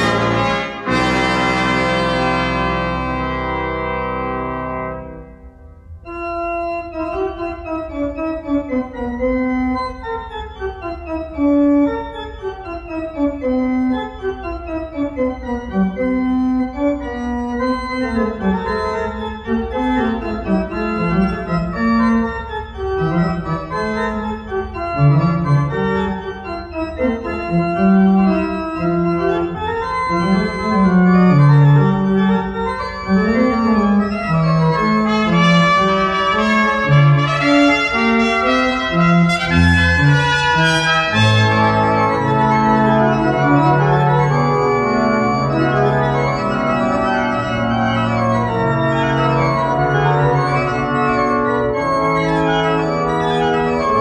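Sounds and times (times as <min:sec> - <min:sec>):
organ-like keyboard melody: 0:00.0 - 0:54.0.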